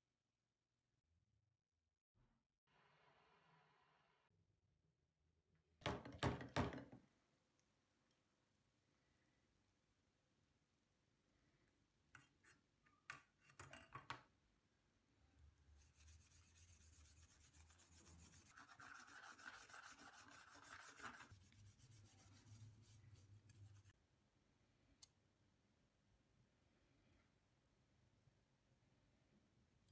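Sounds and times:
scratchy rubbing on scissors: 15.8s - 24.0s.

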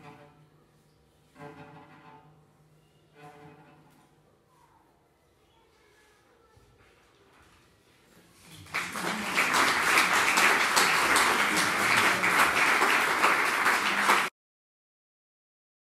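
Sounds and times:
audience applauding: 8.5s - 14.3s.

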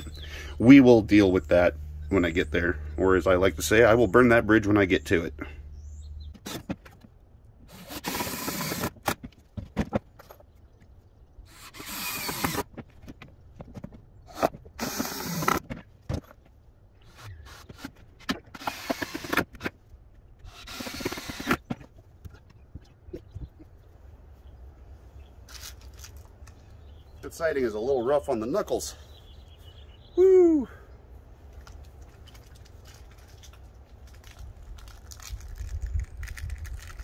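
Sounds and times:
power drill driving screws: 7.7s - 9.2s, 11.5s - 12.7s, 14.3s - 15.7s, 18.5s - 19.7s, 20.5s - 21.7s
boards knocking and clattering: 9.0s - 10.5s.

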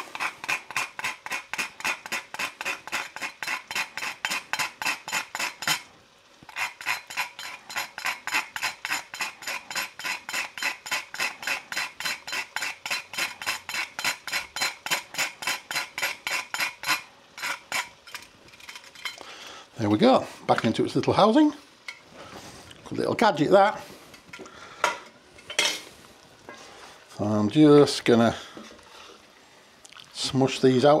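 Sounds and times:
nutmeg rasping on metal grater: 0.0s - 5.8s, 6.5s - 18.3s.

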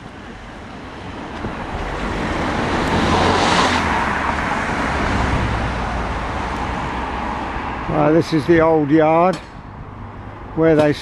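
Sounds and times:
car driving past: 1.9s - 8.0s.

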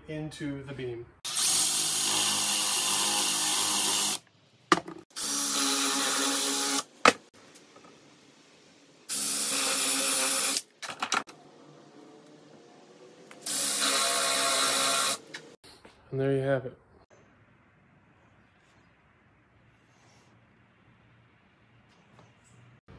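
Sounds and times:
power drill boring into wood: 1.3s - 4.2s, 5.2s - 6.9s, 9.1s - 10.6s, 13.4s - 15.2s.

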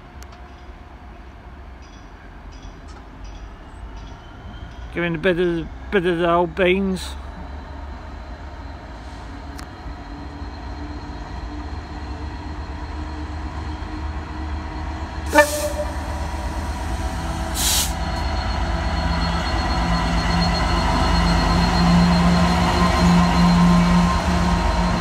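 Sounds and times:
diesel locomotive engine: 0.0s - 25.0s
hissing bursts: 15.3s - 18.2s.

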